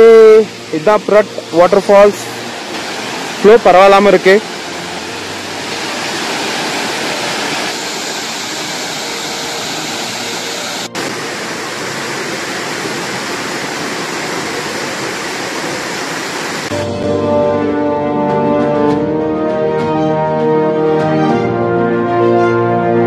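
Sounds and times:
waterfall rushing: 0.0s - 16.8s.

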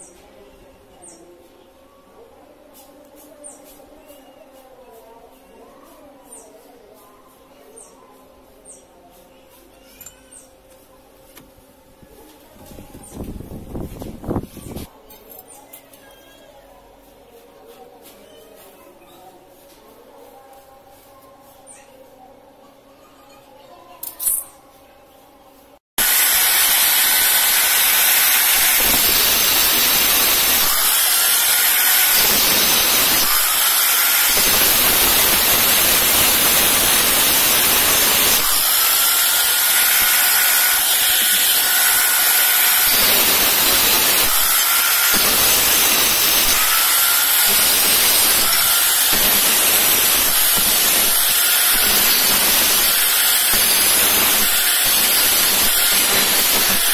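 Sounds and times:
angle grinder cutting steel: 26.0s - 56.9s.

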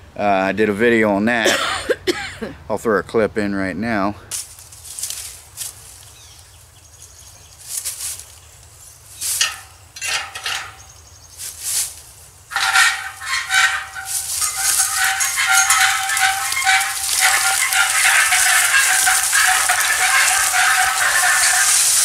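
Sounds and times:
metal trailer frame knocking: 9.4s - 10.9s, 12.5s - 22.0s
trailer rattling on wheels: 9.4s - 11.1s, 12.4s - 22.0s.

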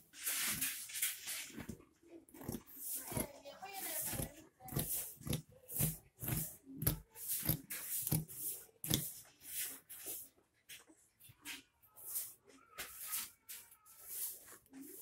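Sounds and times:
scissors snipping fabric: 1.6s - 3.3s, 3.9s - 9.3s.

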